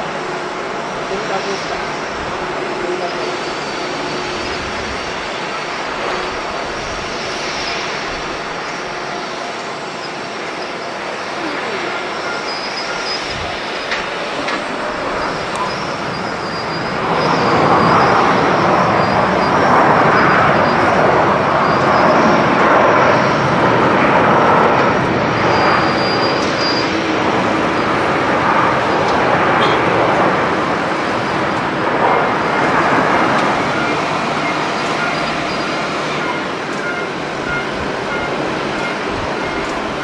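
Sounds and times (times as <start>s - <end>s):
jet engines running loud: 0.0s - 40.0s.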